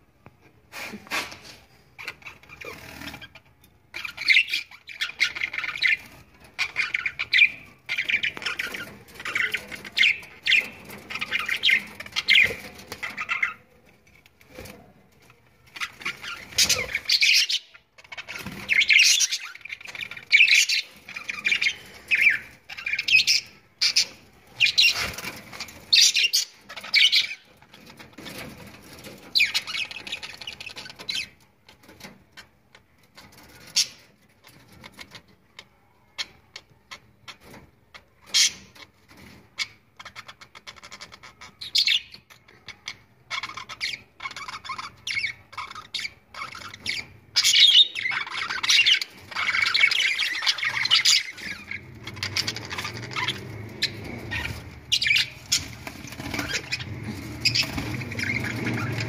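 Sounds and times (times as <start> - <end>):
budgerigars chattering: 4.0 - 13.6, 15.8 - 27.5, 40.0 - 59.0.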